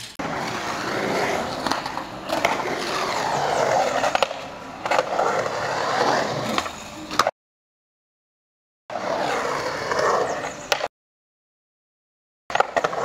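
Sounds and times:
skateboard wheels rolling: 0.0 - 7.3, 8.9 - 10.9, 12.5 - 13.0
skateboard clacks: 0.2 - 5.1, 10.7 - 10.9.

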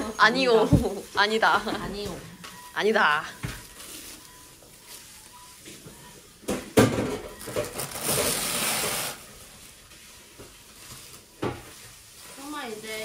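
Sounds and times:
plastic wrap crinkling: 3.4 - 5.9, 7.3 - 13.0.

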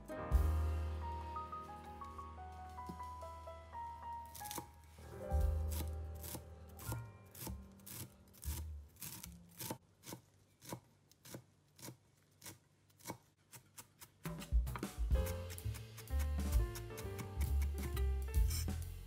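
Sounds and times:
knife chopping on cutting board: 13.8 - 18.7.

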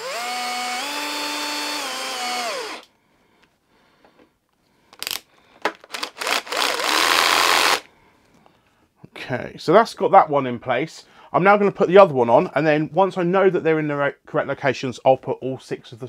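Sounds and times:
drill motor whine: 0.0 - 2.8, 6.2 - 7.8.

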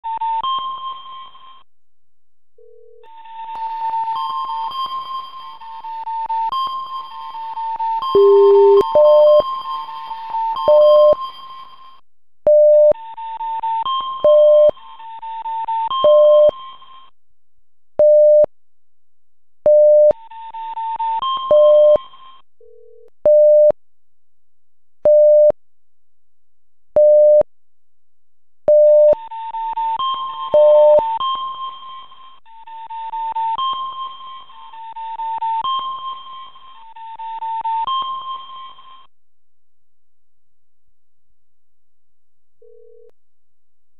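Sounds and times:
short repeating beep: 8.2 - 9.4.

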